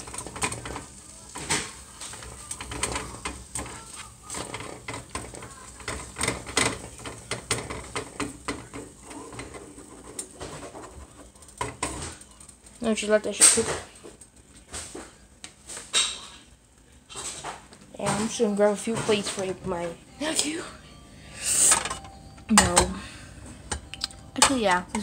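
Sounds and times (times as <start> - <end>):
spatula scraping frying pan: 0.0 - 12.0.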